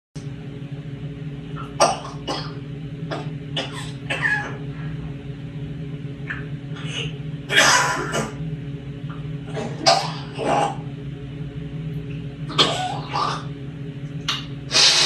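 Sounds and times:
steady low hum: 0.2s - 15.0s
parrot mimicking coughs: 1.7s - 4.6s, 6.8s - 8.4s, 9.5s - 10.9s, 12.5s - 13.5s.

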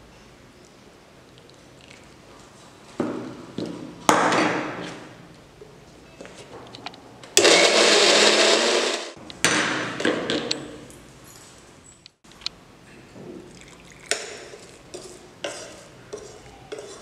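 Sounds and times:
mixer grinder grinding: 7.4s - 9.2s.

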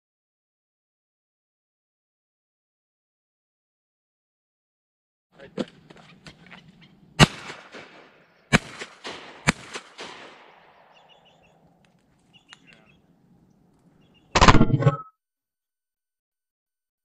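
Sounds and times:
shotgun shots with echo: 7.2s - 11.6s.

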